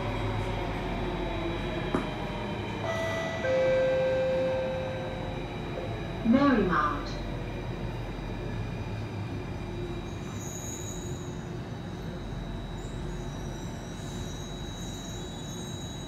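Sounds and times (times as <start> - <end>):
metro train interior rumble: 0.0 - 16.0
high-pitched tone: 2.8 - 5.4.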